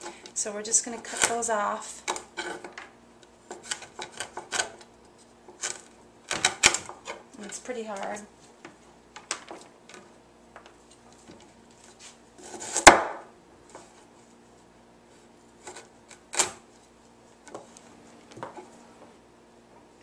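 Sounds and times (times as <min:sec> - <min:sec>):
knife chopping on wooden board: 0:12.6 - 0:13.2.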